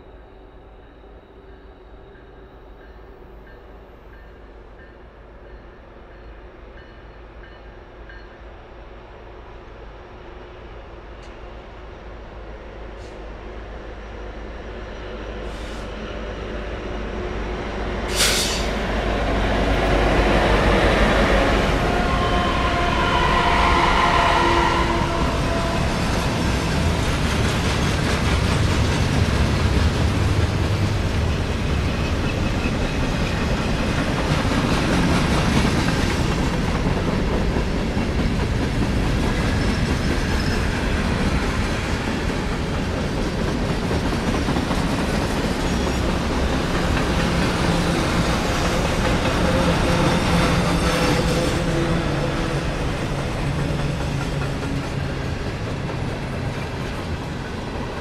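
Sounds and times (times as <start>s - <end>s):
diesel locomotives passing: 0.0s - 58.0s.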